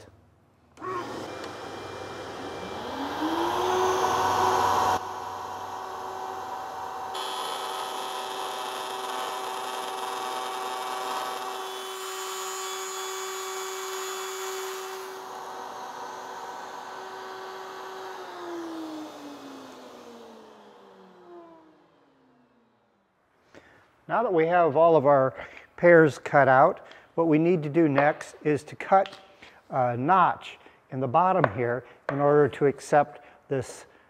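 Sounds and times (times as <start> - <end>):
wood router high whine: 0.8 - 22.8.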